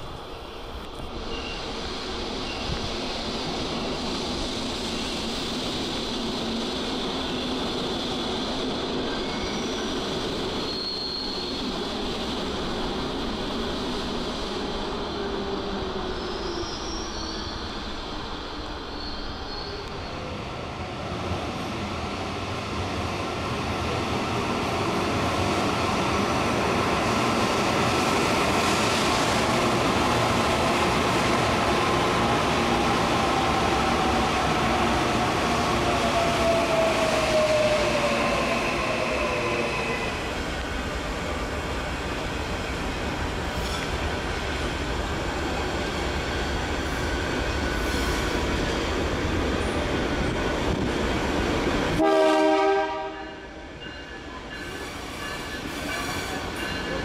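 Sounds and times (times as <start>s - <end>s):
train arriving with falling whine: 0.0s - 57.0s
train moving along track: 0.0s - 57.0s
high wheel squeals: 9.0s - 12.0s, 18.9s - 20.2s.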